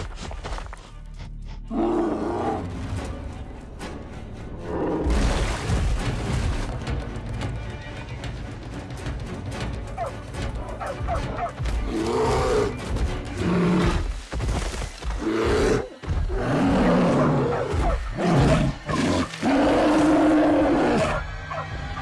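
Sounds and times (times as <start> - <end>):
background music: 0.0 - 22.0
bear roaring and growling: 1.7 - 2.9, 15.2 - 21.3.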